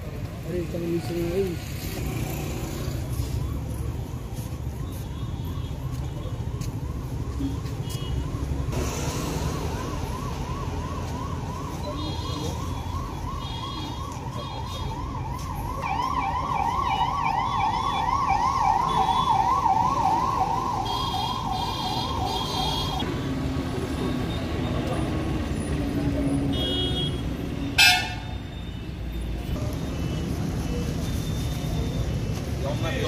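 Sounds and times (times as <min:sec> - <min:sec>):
low traffic rumble: 0:00.0 - 0:33.0
siren yelping: 0:06.3 - 0:23.0.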